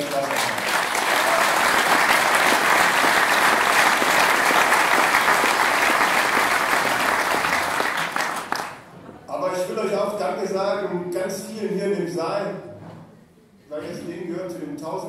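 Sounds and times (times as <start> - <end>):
crowd applauding: 0.0 - 8.9.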